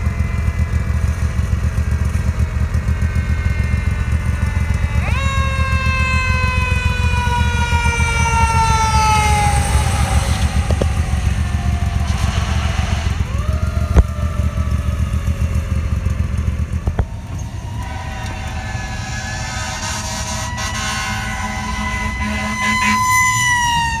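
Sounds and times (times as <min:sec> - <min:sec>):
vehicle horn tones: 0:00.0 - 0:06.6, 0:17.0 - 0:23.7
fire engine siren: 0:00.0 - 0:24.0
steady low rumble: 0:06.3 - 0:23.1.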